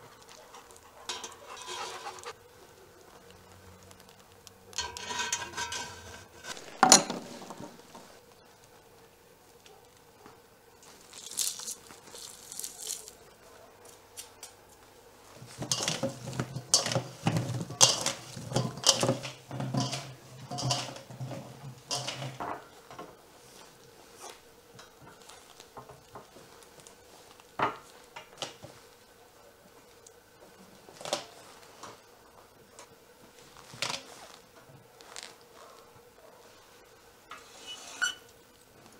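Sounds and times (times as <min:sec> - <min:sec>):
mushrooms clattering in metal bowl: 0:01.1 - 0:02.3, 0:04.7 - 0:07.8, 0:15.4 - 0:23.1.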